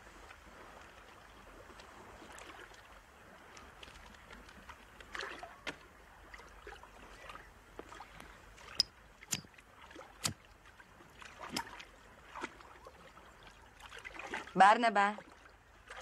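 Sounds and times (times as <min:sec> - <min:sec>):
water sloshing and lapping: 0:00.0 - 0:16.0
short sharp splashes: 0:06.6 - 0:14.6.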